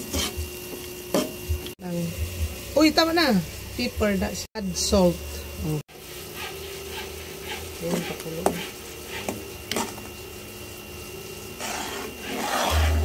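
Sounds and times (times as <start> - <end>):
spatula stirring simmering sauce: 5.9 - 10.0, 11.6 - 13.0
spatula tapping and scraping pan: 6.4 - 10.0.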